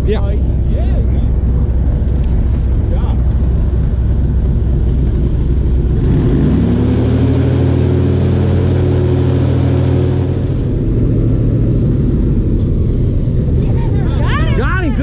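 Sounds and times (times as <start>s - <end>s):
airboat engine revving: 0.0s - 15.0s.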